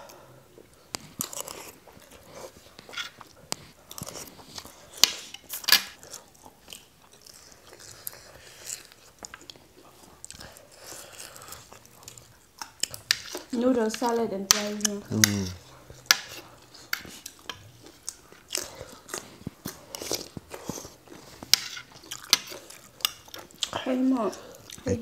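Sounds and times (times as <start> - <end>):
chewing and biting food: 0.8 - 13.6, 14.8 - 24.9
crunches while eating: 15.1 - 23.8.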